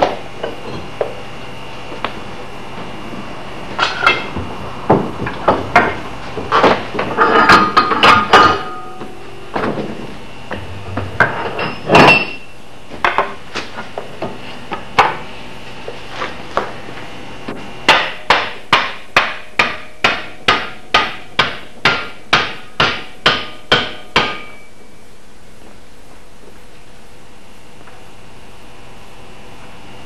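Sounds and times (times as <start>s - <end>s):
hammer striking wooden handle: 17.9s - 24.6s.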